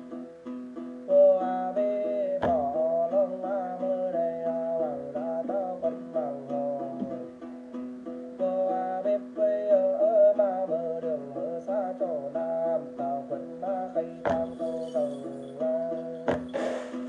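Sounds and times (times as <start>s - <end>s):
plucked lute: 0.0s - 17.0s
man chanting: 11.2s - 16.6s.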